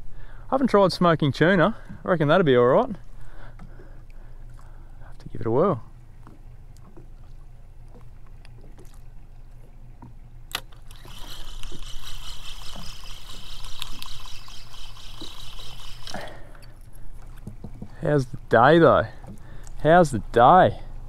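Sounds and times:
fishing reel bail snapping shut: 10.5s - 16.7s
spinning reel whirring: 10.8s - 16.4s.

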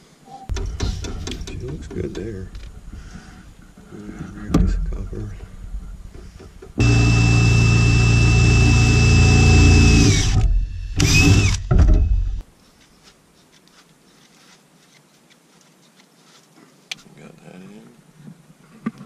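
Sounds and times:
power tool motor whining: 6.8s - 12.4s.

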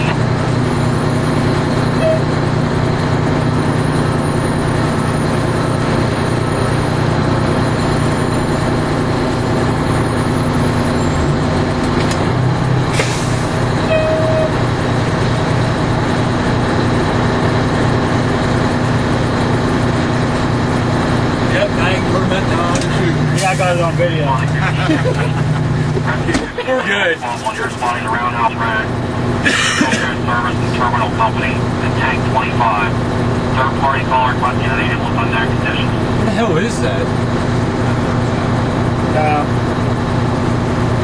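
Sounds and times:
diesel engine idling: 0.0s - 41.0s
short beep: 2.0s - 2.3s, 13.9s - 14.6s.

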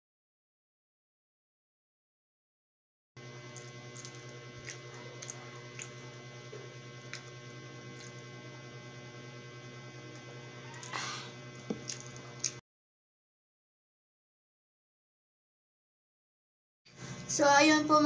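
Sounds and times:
electrical mains hum: 3.2s - 12.6s, 16.9s - 18.0s
faint chewing clicks: 3.5s - 6.0s, 7.0s - 8.2s, 11.8s - 12.6s.

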